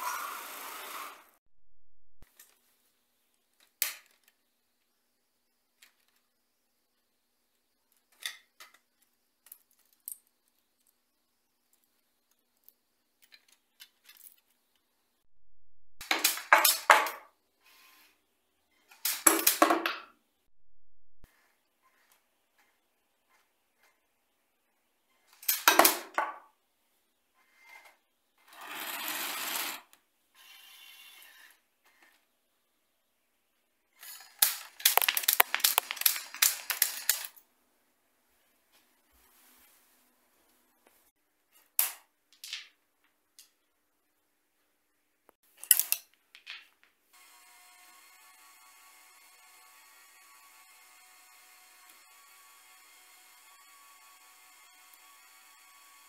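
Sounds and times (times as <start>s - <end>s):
toy gun firing plastic clacks: 19.0s - 19.8s, 34.4s - 37.4s.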